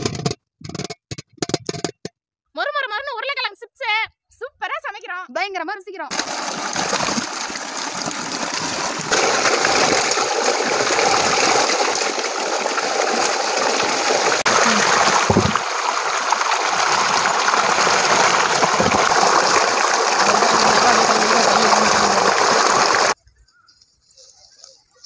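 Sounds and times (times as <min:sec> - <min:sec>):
hands scrubbing potatoes: 0:06.1 - 0:23.2
water jet splashing on steel bowl: 0:06.1 - 0:23.2.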